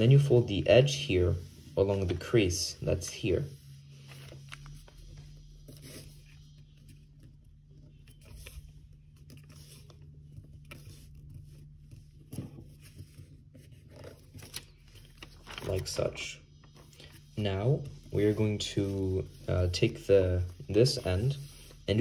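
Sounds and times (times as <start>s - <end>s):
paper rustling and scraping: 0.0s - 22.0s
steady low hum: 0.0s - 22.0s.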